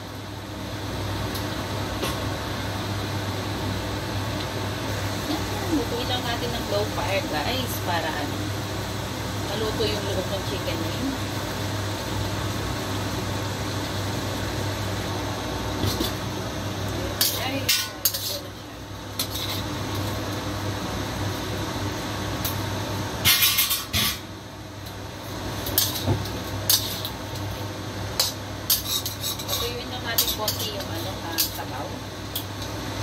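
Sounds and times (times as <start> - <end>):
steady low hum: 0.0 - 33.0
metal lid and spatula clanking on wok: 23.2 - 24.2.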